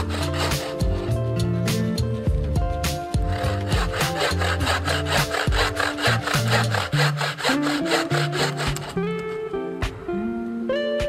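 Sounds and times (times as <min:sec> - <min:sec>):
bow saw cutting wood: 0:00.0 - 0:01.5, 0:02.8 - 0:09.4.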